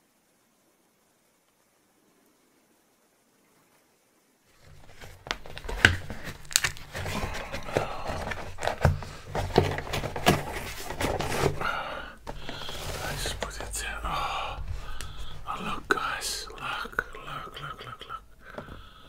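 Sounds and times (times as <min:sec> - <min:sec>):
sharp clicks and crackles: 0:04.6 - 0:11.5
food packaging crinkling: 0:04.6 - 0:17.2.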